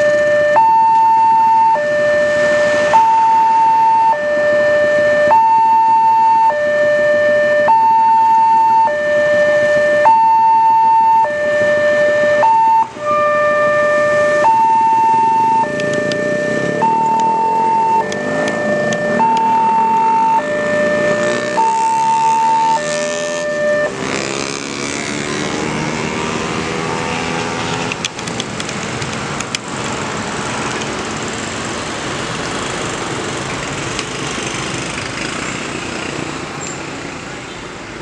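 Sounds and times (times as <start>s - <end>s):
motorcycle engines rumbling: 0.0s - 38.0s
level crossing alarm two-tone: 12.0s - 24.0s.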